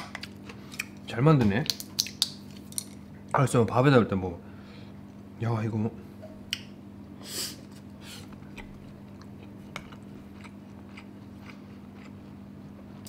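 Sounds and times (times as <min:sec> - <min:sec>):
chewing crunches: 0:08.2 - 0:12.5.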